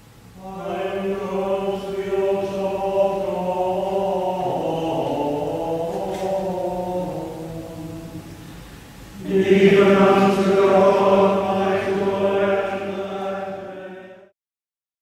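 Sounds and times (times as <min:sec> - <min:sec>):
voices singing a hymn: 0:00.3 - 0:14.3.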